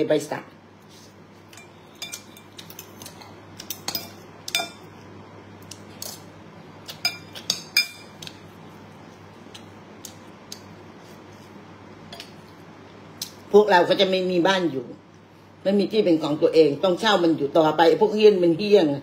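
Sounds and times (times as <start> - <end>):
cutlery clinking on ceramic bowl: 1.5 - 4.9, 6.9 - 8.3.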